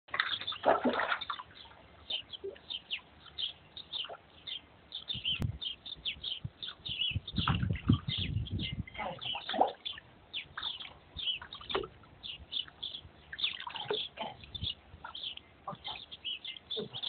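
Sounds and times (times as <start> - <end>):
dog splashing through water: 0.1 - 1.6
small birds chirping: 0.1 - 17.0.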